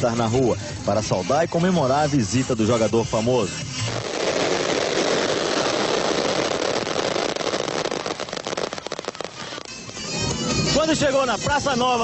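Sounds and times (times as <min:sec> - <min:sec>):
fireworks hissing rush: 0:02.2 - 0:12.0
fireworks crackling pops: 0:03.5 - 0:10.8.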